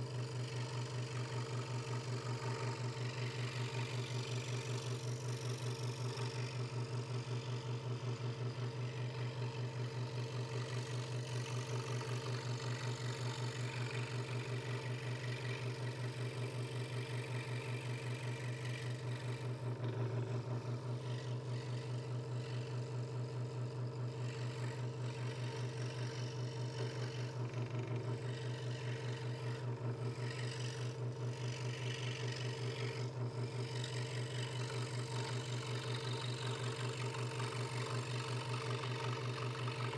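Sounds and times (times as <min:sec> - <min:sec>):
scroll saw cutting wood: 0:00.0 - 0:39.9.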